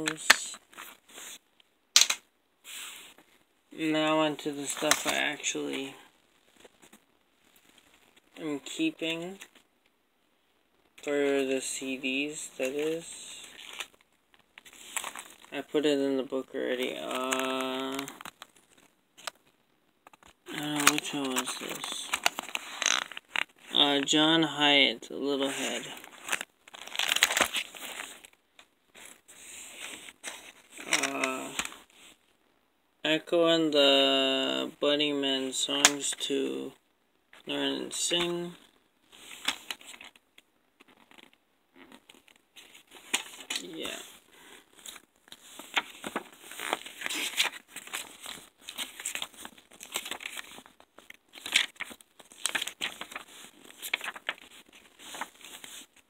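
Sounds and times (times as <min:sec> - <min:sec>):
cd case rustling and clicking: 0:02.0 - 0:02.2, 0:04.6 - 0:05.3, 0:13.5 - 0:15.5, 0:17.2 - 0:23.6, 0:26.0 - 0:29.2, 0:39.3 - 0:40.2, 0:42.0 - 0:44.0, 0:44.8 - 0:56.0.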